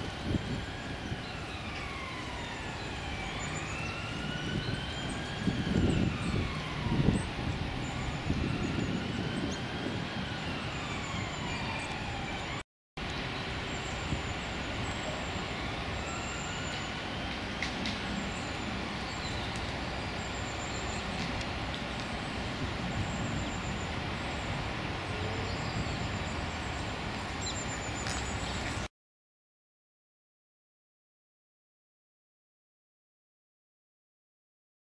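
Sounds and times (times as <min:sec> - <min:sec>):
distant traffic rumble: 0:00.0 - 0:28.9
passing engine whine: 0:00.0 - 0:28.9.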